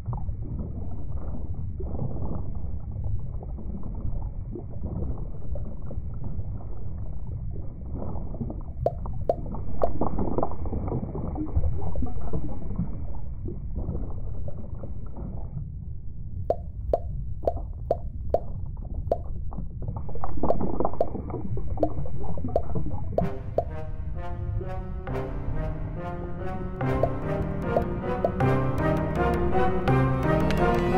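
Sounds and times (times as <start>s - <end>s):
small bubble plinks: 8.4s - 10.5s, 16.4s - 23.8s, 26.8s - 30.9s.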